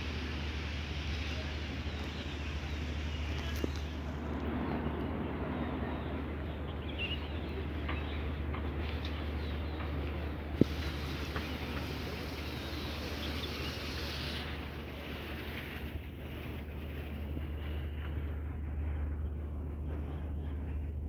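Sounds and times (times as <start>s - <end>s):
steady hiss: 0.0s - 4.4s, 8.6s - 18.2s
low rumble: 0.0s - 13.3s, 14.4s - 21.0s.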